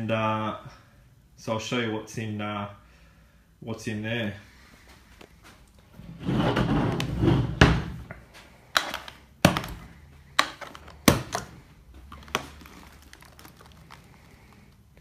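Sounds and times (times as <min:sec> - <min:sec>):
plastic case rubbing and knocking: 0:06.0 - 0:08.0
case latches snapping open: 0:10.4 - 0:13.2.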